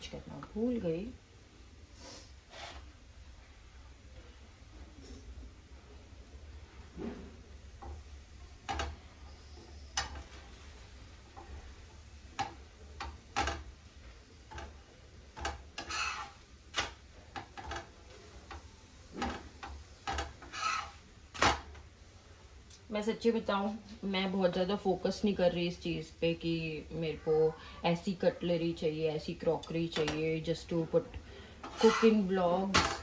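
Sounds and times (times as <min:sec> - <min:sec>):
spatula scraping: 0:02.0 - 0:03.0, 0:14.5 - 0:21.6, 0:31.5 - 0:33.0
metal spatula tapping iron griddle: 0:07.8 - 0:09.0, 0:09.9 - 0:10.3, 0:12.3 - 0:13.7, 0:14.4 - 0:21.6, 0:31.6 - 0:33.0.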